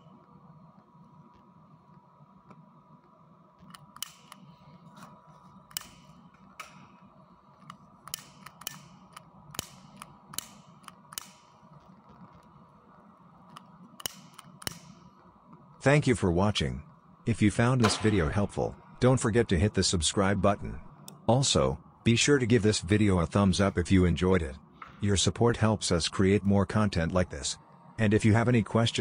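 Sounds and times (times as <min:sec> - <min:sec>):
cooling fan humming: 0:00.0 - 0:29.0
sharp clicks and ticks: 0:02.5 - 0:04.6, 0:05.7 - 0:12.6, 0:13.5 - 0:15.6.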